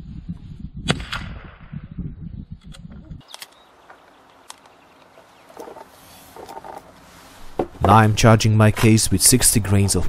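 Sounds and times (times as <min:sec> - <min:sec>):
low rumble: 0:00.0 - 0:03.2
priming tool clicks: 0:02.6 - 0:05.8.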